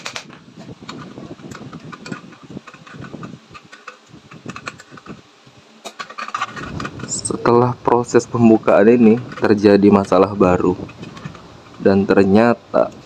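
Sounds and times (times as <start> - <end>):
metal parts clicking and rattling: 0.9 - 5.2, 5.9 - 7.4, 8.8 - 11.9.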